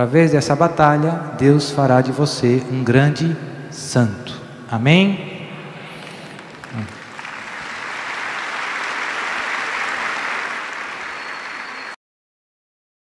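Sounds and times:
audience applause: 6.0s - 12.0s.

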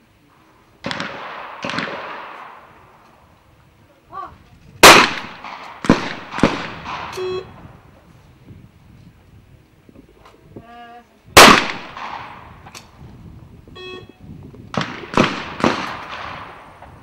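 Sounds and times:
shotgun shots: 0.8s - 2.8s, 4.8s - 7.3s, 11.4s - 12.5s, 14.7s - 16.9s
short beep: 7.2s - 7.6s, 13.7s - 14.3s.

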